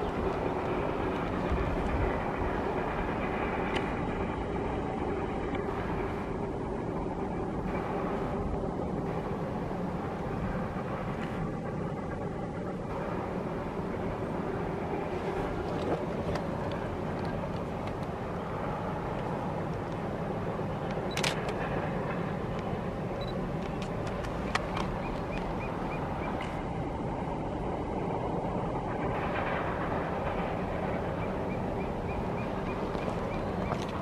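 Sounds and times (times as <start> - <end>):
distant train rumbling: 0.0 - 34.0
sharp clicks: 20.9 - 21.6.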